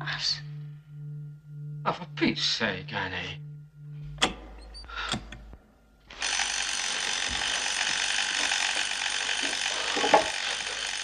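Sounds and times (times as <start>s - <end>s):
electric bell ringing: 6.1s - 11.0s.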